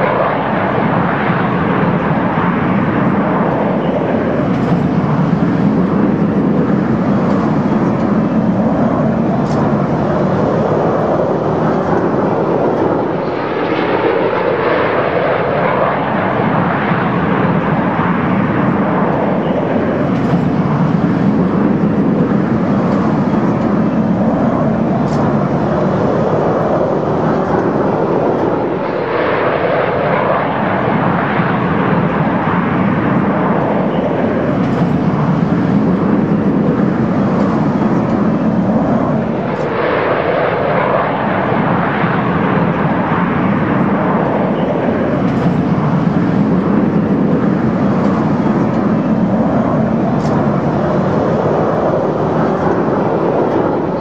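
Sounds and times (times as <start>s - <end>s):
jets flying overhead: 0.0s - 54.0s.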